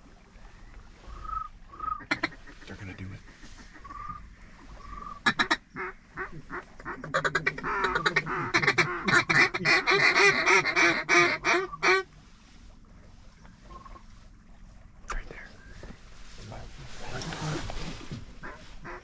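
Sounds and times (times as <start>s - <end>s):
duck call quacks: 1.2s - 2.7s, 4.8s - 12.1s, 18.4s - 19.0s.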